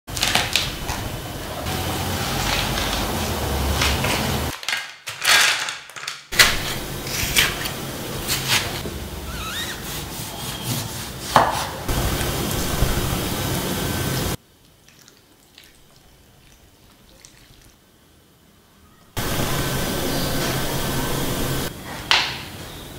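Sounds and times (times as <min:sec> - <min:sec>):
steady low hum: 0:06.4 - 0:09.3, 0:11.9 - 0:14.4, 0:19.2 - 0:21.8.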